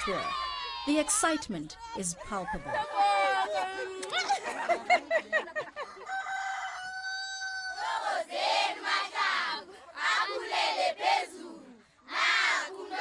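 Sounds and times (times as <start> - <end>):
women ululating: 0.0 - 1.2, 1.8 - 4.6.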